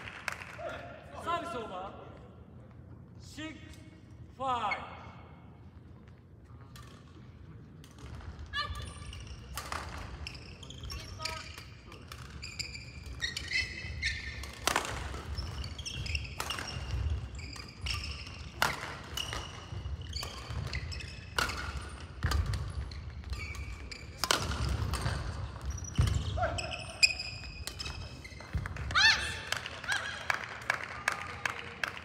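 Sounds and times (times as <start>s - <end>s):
shoes squeaking on floor: 10.2s - 14.6s, 15.2s - 28.8s
racket striking shuttlecock: 14.4s - 25.4s.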